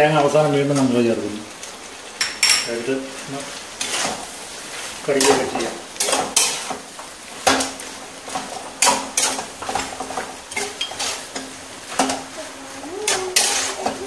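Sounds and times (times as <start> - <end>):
food frying hiss: 0.0 - 14.0
spoon scraping frying pan: 3.8 - 14.0.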